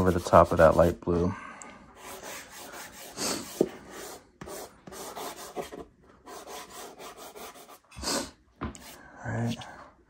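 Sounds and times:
pastel scraping on paper: 0.0 - 1.2, 2.0 - 8.2.

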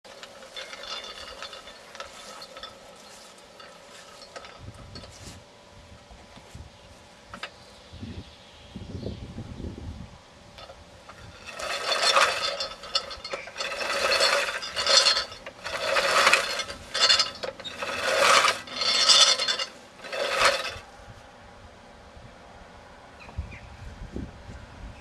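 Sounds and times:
reel lawn mower whirring: 0.0 - 5.5, 7.2 - 7.8, 10.5 - 21.0.

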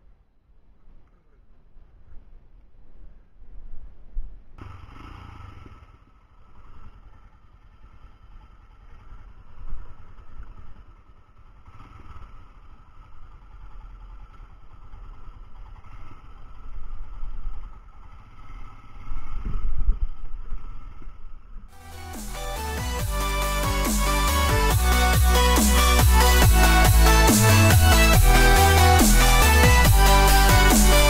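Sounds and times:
motorcycle engine rumbling: 4.6 - 19.4.

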